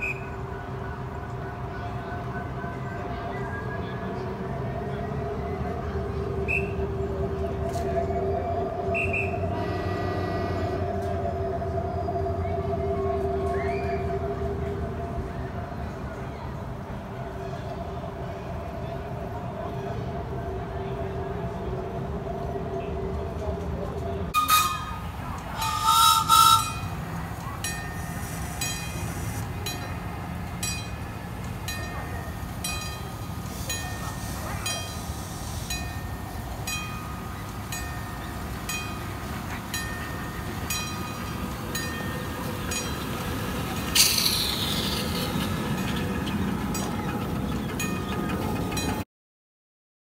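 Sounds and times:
miniature train rumbling: 0.0 - 49.0
steam whistle: 7.7 - 14.4, 24.4 - 27.1
steam hissing: 25.5 - 29.6, 31.4 - 47.7.

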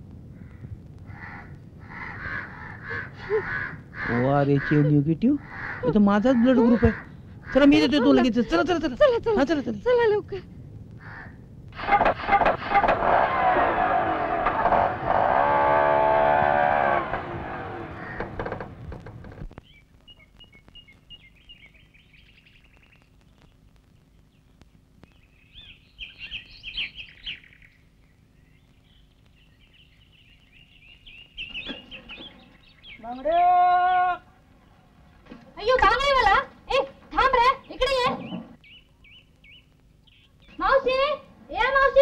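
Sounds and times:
birds chirping: 11.0 - 42.0
auto-rickshaw engine running: 12.9 - 19.4.

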